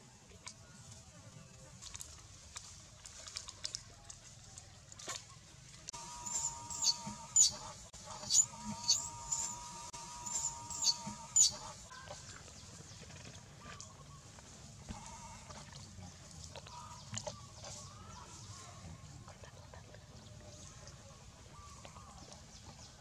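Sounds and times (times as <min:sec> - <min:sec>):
macaque wailing and squealing: 0:06.3 - 0:07.6, 0:08.2 - 0:09.6, 0:10.3 - 0:11.7.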